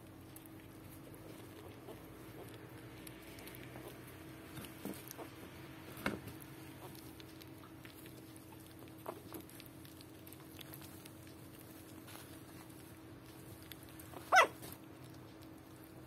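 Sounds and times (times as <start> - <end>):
puppies shuffling: 0.2 - 16.0
puppies squeaking: 14.2 - 14.7.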